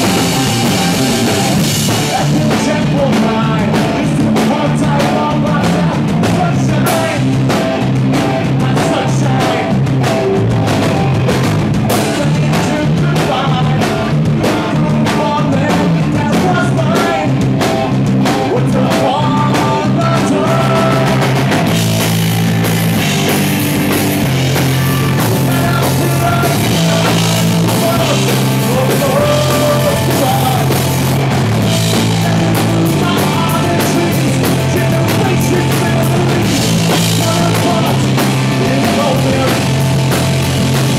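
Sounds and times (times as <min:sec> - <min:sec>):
electric guitar strumming: 0:00.0 - 0:03.6, 0:17.6 - 0:40.9
person singing: 0:00.0 - 0:07.6, 0:08.2 - 0:09.9, 0:18.4 - 0:21.4, 0:24.5 - 0:40.0
drum kit: 0:00.0 - 0:40.9.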